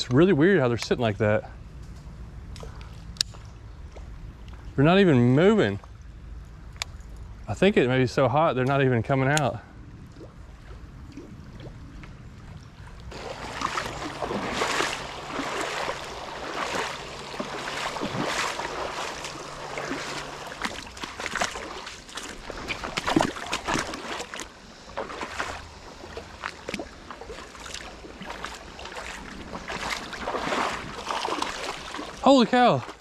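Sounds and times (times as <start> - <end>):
wading steps splashing in water: 10.1 - 33.0.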